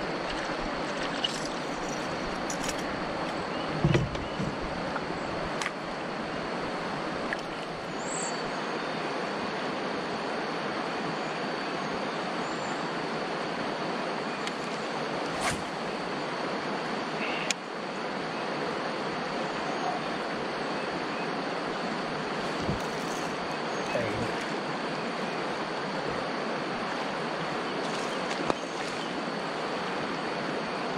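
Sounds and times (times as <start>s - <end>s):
river current rushing: 0.0s - 3.8s, 4.5s - 11.2s, 12.0s - 30.9s.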